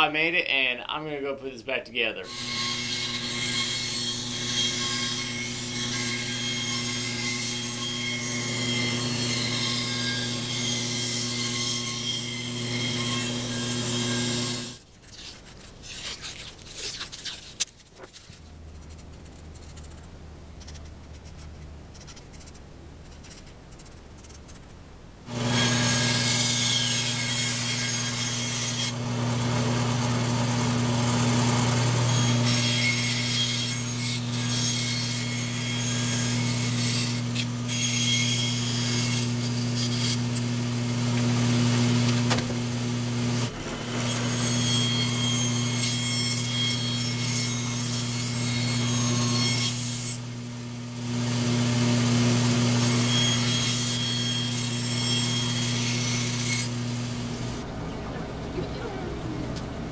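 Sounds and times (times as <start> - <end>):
saw blade cutting wood: 2.2 - 18.2, 25.3 - 42.4, 43.4 - 50.3, 51.3 - 57.6
bandsaw motor hum: 2.3 - 14.8, 25.3 - 59.9.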